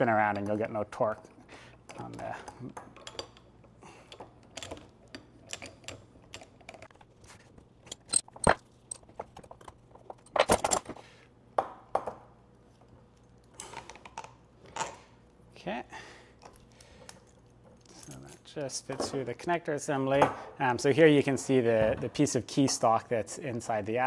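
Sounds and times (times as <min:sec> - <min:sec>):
metal clicks and clinks: 0:01.9 - 0:07.0, 0:07.8 - 0:10.9.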